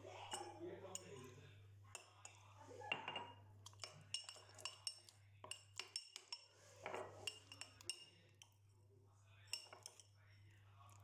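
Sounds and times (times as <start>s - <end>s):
spoon scraping bowl: 0.0s - 1.3s, 1.9s - 8.6s, 9.4s - 10.2s
metal spoon clinking on glass bowl: 0.2s - 1.3s, 1.9s - 8.6s, 9.4s - 10.2s.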